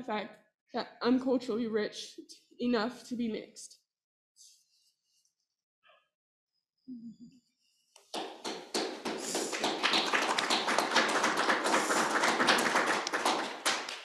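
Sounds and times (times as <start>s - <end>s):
group of people clapping: 8.0s - 14.0s.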